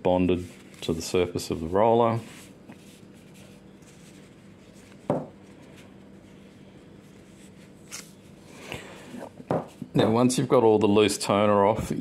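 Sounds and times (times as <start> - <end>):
damp cloth rubbing a rubber roller: 0.5 - 6.4.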